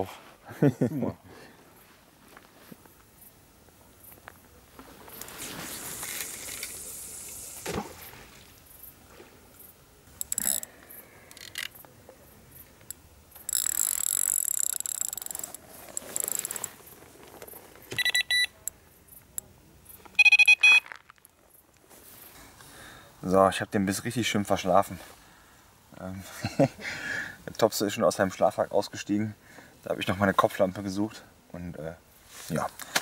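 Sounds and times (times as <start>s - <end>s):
rustling and handling noise: 15.0s - 18.1s, 19.9s - 22.7s
electronic bite alarm beeps: 17.9s - 18.6s, 20.2s - 20.9s.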